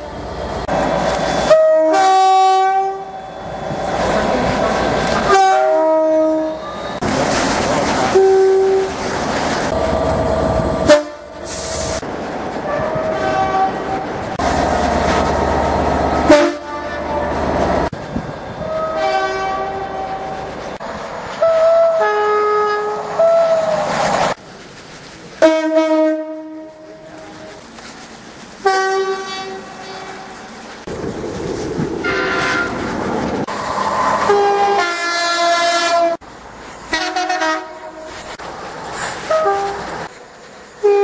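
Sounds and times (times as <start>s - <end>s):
train running and rail clatter: 0.0s - 41.0s
two-tone train horns: 1.1s - 3.3s, 5.0s - 7.0s, 8.0s - 9.0s, 10.8s - 11.5s, 12.6s - 14.2s, 16.2s - 17.6s, 18.6s - 20.5s, 21.4s - 23.8s, 25.4s - 27.6s, 28.6s - 30.6s, 32.0s - 32.8s, 34.2s - 36.2s, 36.9s - 38.3s, 39.3s - 39.9s, 40.8s - 41.0s.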